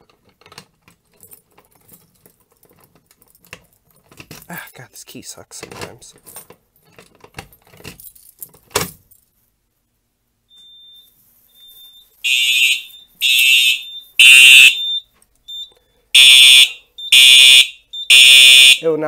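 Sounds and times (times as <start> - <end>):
keys jangling in a lock: 0.2 - 4.8, 5.8 - 9.3
fire alarm horn blasts: 12.2 - 15.0, 16.2 - 18.9.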